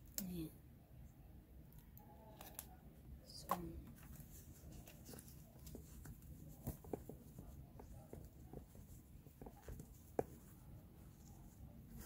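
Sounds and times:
cardboard and paper rustling: 3.4s - 12.0s.

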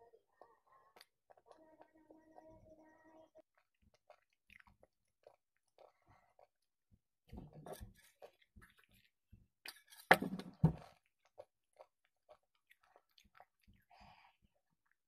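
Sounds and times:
chewing mouth clicks and smacks: 3.5s - 6.7s, 10.8s - 15.0s.

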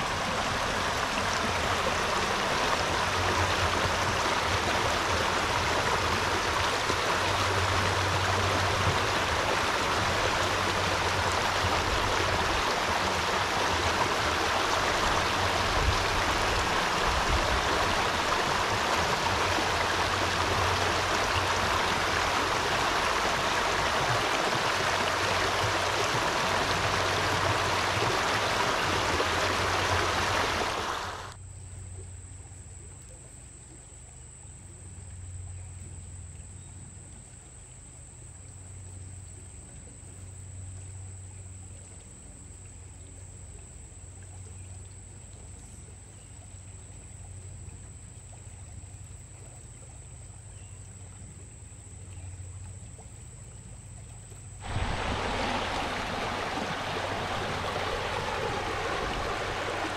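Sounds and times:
stream water rushing: 0.0s - 31.4s, 54.6s - 59.9s.

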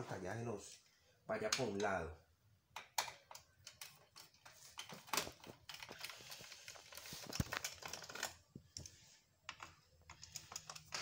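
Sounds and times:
screwdriver clicking and scraping metal: 2.8s - 11.0s.

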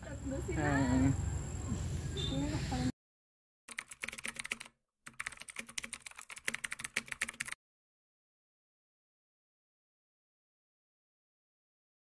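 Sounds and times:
keyboard typing clicks: 3.7s - 7.6s.

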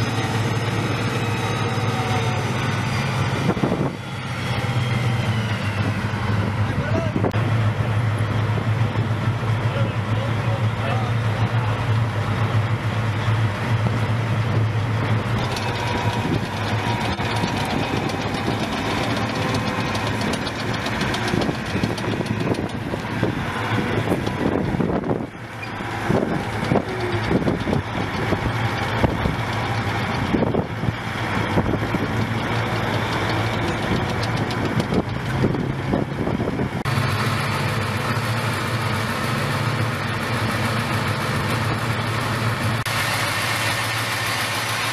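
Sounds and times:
diesel engines idling: 0.0s - 44.9s
scattered knocks: 15.4s - 24.8s, 31.7s - 35.9s.

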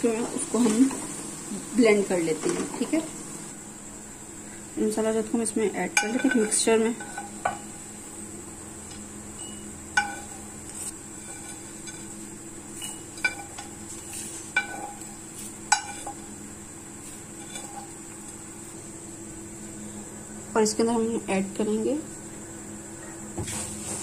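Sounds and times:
spoon scraping spices in pan: 5.8s - 8.3s, 8.9s - 19.0s
spoon clinking on pan and jar: 9.4s - 10.4s, 12.7s - 13.8s, 14.5s - 15.1s.

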